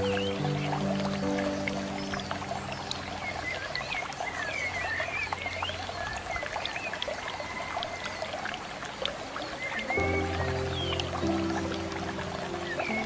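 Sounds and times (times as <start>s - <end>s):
water trickling: 0.0s - 13.0s
bird chirps: 12.5s - 13.0s.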